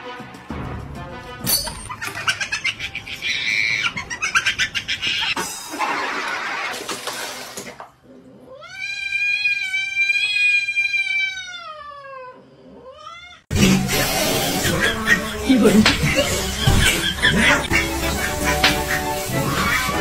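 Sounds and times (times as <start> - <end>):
cat yowling: 8.5 - 13.5
rough animal sounds: 13.6 - 20.0.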